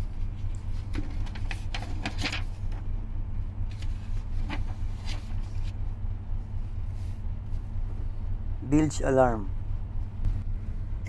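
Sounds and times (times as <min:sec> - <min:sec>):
machinery humming: 0:00.0 - 0:11.0
pages rustling: 0:00.4 - 0:02.8, 0:03.7 - 0:05.8.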